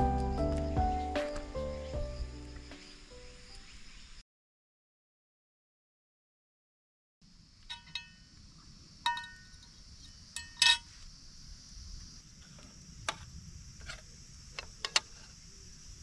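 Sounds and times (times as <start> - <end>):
insect buzz: 0.0 - 4.2, 7.3 - 16.0
metal fork clinking on cookware: 7.7 - 8.2, 9.1 - 9.5.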